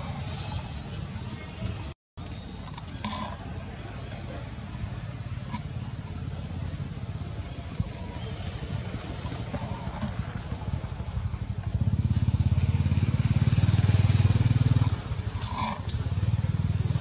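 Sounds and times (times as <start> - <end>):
engine running with pulsing drone: 2.7 - 17.0.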